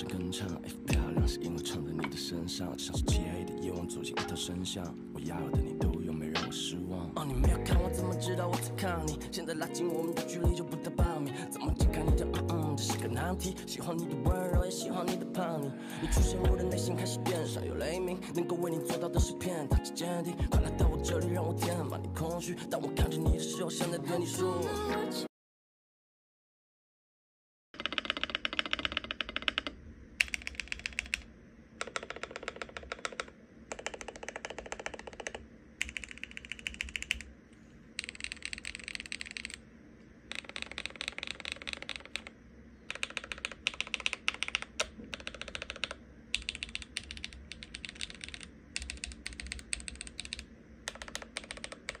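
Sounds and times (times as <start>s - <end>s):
mechanical keyboard typing: 27.8s - 37.3s, 38.0s - 39.6s, 40.3s - 52.0s.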